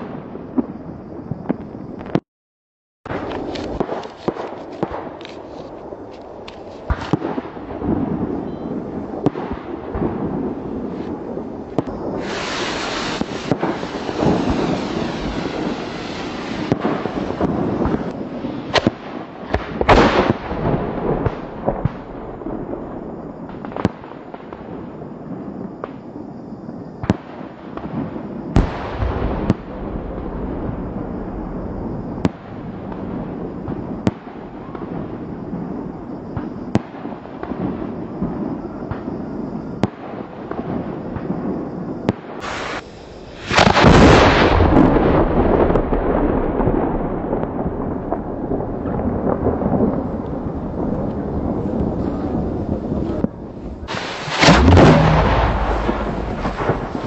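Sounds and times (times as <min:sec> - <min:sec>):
sharp firework pops: 0:01.4 - 0:02.2, 0:03.1 - 0:08.1, 0:10.9 - 0:22.7, 0:23.5 - 0:24.8, 0:25.8 - 0:26.1, 0:27.0 - 0:30.6, 0:32.2 - 0:35.6, 0:36.3 - 0:39.2, 0:39.8 - 0:41.4, 0:42.0 - 0:45.0, 0:53.0 - 0:57.0
heavy firework booms: 0:06.8 - 0:57.0
firework shell hissing rush: 0:12.0 - 0:18.8, 0:42.4 - 0:43.8, 0:53.6 - 0:57.0.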